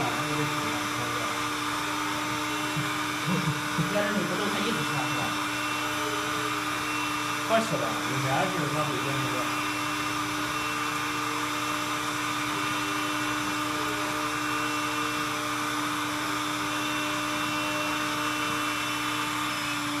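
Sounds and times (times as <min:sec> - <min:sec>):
robot suction fan whine: 0:00.0 - 0:20.0.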